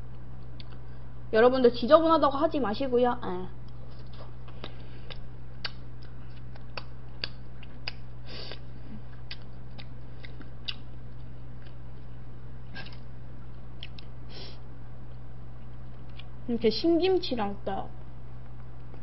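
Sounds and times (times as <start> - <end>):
person chewing with lip-smacking: 0.4 - 1.0, 3.6 - 14.1, 15.1 - 16.4.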